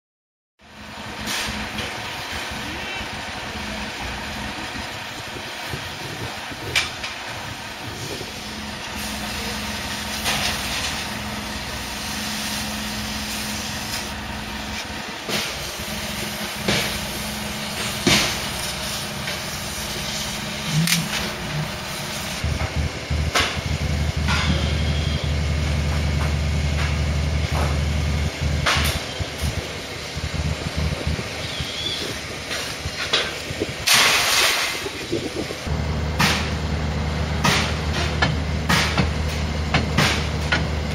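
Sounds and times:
crane engine idling: 0.6s - 34.2s, 34.8s - 40.9s
deep heavy engine hum: 0.6s - 40.9s
metal clanks and knocks: 22.5s - 24.8s.

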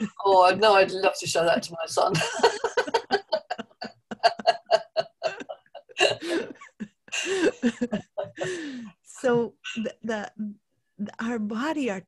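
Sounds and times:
woman laughing: 2.1s - 9.4s.

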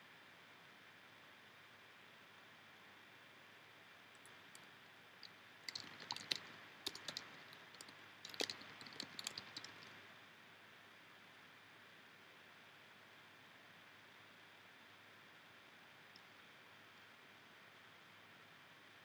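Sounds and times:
keyboard typing clicks: 5.6s - 10.0s.

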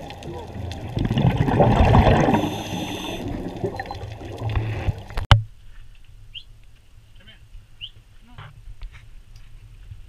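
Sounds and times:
water bubbling and gurgling: 0.0s - 5.3s.

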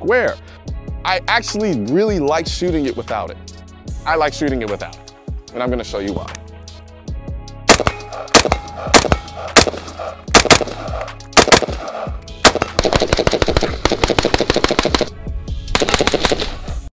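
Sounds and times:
rifle gunshots: 7.7s - 15.1s, 15.7s - 16.6s.

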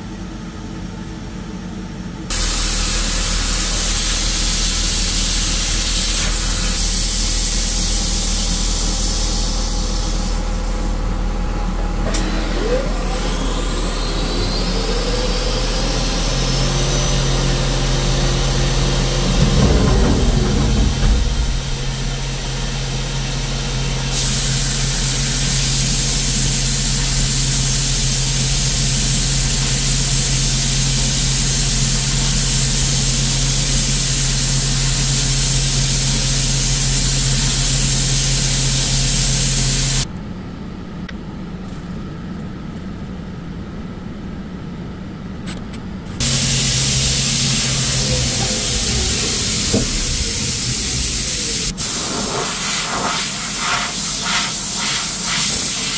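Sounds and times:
coolant spray hissing: 2.3s - 11.0s, 12.7s - 40.1s, 46.2s - 55.9s
milling machine spindle humming: 2.3s - 33.2s, 46.2s - 51.8s
low rumble: 17.7s - 24.2s, 46.2s - 51.8s.

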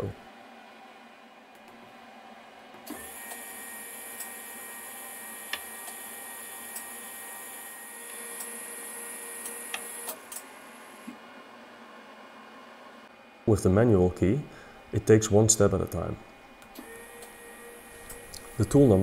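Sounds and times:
lathe turret motor whine: 16.8s - 19.0s.

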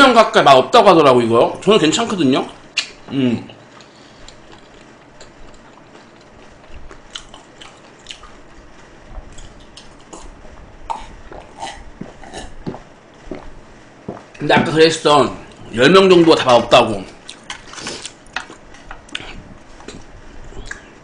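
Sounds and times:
wet mouth clicks: 2.7s - 3.0s, 20.6s - 20.9s.

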